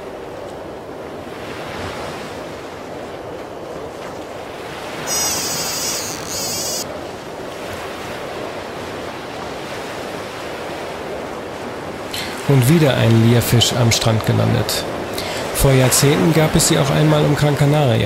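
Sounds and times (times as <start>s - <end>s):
wind buffeting microphone: 0.0s - 16.7s
surf breaking on a beach: 0.0s - 18.0s
high-pitched rippling buzz: 5.0s - 6.9s.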